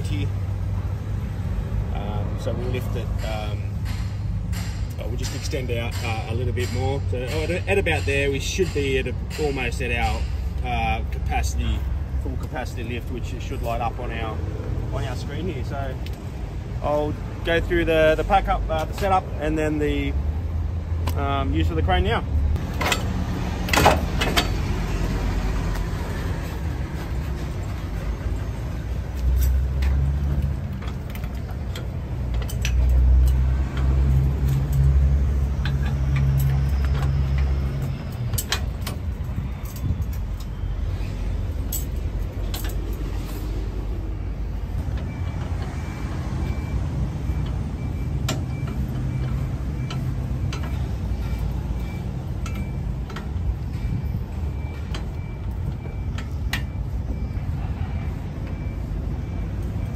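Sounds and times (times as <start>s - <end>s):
vehicle engine rumbling: 0.0s - 59.9s
metal clunks and clicks: 2.5s - 14.4s, 22.5s - 59.9s.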